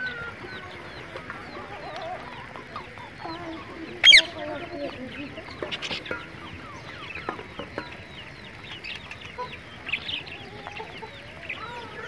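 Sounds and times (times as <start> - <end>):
chickens clucking: 0.0 - 12.0
high falling chirps: 3.0 - 4.4.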